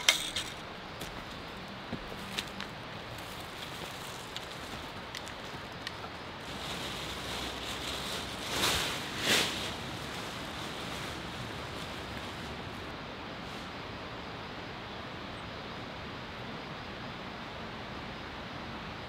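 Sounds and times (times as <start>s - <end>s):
tarp crinkling and rustling: 2.2s - 12.9s
tarp swishing: 6.4s - 12.9s.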